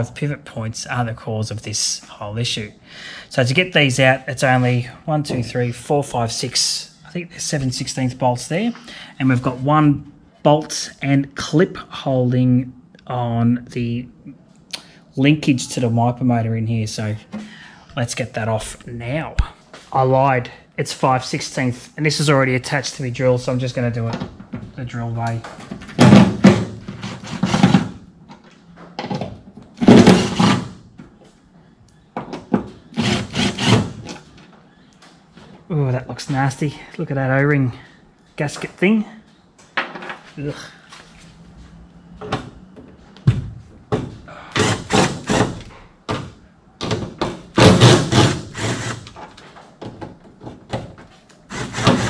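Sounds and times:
cordless drill whirring: 33.0 - 33.8.

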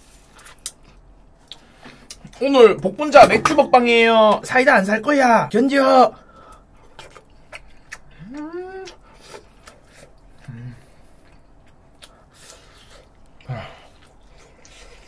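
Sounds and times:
chewing and mouth smacks: 0.3 - 2.4, 6.5 - 15.0
person humming mmm: 8.1 - 9.0, 10.4 - 10.9.

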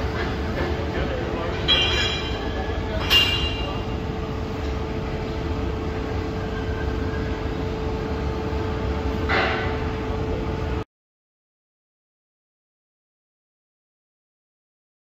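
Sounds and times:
machine hum and rumble: 0.0 - 10.9
sharp metallic clank: 1.6 - 3.9.

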